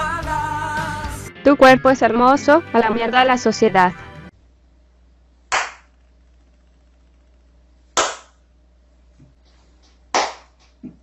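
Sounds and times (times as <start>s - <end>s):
loud hand claps: 5.5s - 5.9s, 8.0s - 8.4s, 10.1s - 10.8s.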